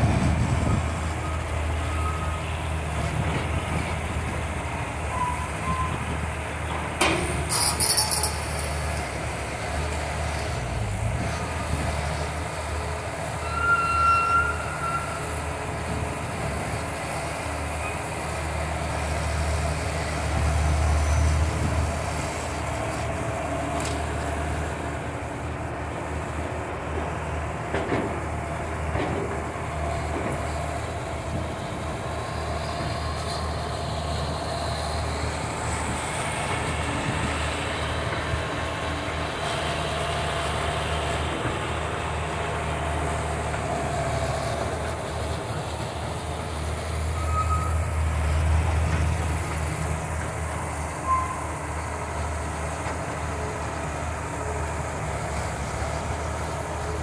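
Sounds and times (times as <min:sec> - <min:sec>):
excavator diesel engine running: 0:00.0 - 0:13.6, 0:14.5 - 0:57.0.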